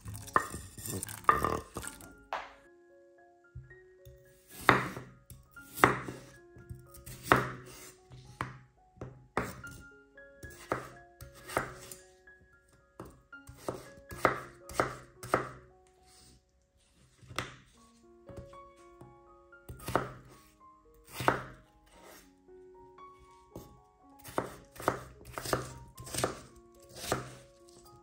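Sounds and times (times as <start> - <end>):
soft background music: 0.0 - 28.0
knife slicing potato on board: 4.5 - 5.0, 5.7 - 8.5, 9.4 - 9.7, 10.5 - 12.0, 13.5 - 16.2, 19.8 - 20.4, 21.1 - 22.2, 24.2 - 27.8.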